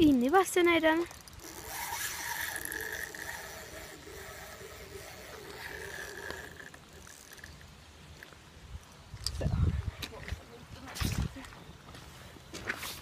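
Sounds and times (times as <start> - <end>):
fishing reel whirring: 0.0 - 8.3.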